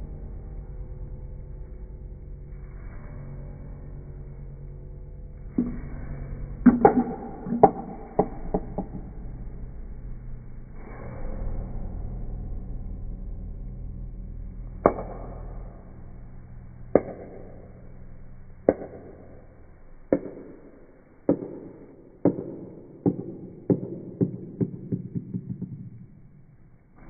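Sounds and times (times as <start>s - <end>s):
low hum: 0.0s - 27.0s
ball clicking on plastic track: 6.7s - 9.1s.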